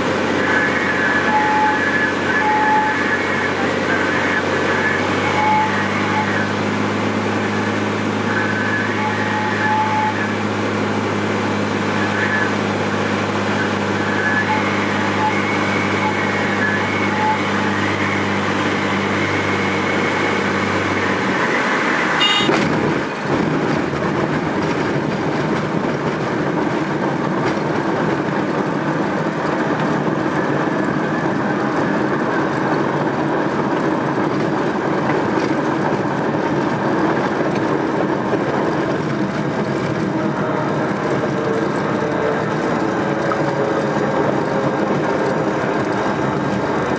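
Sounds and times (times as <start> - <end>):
piston aircraft engine droning: 0.0 - 46.9
high horn-like warning tone: 0.3 - 6.6, 7.5 - 10.5, 13.5 - 20.3, 21.0 - 22.6.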